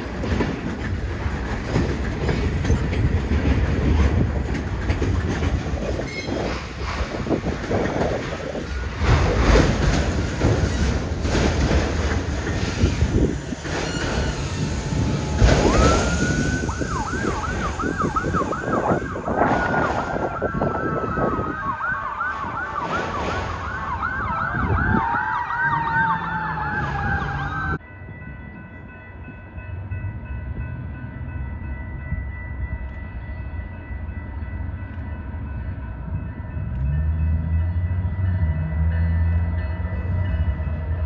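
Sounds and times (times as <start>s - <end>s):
distant locomotive rumble: 0.0s - 41.0s
freight train rolling past: 0.0s - 41.0s
high wailing warbling tone: 13.8s - 27.8s.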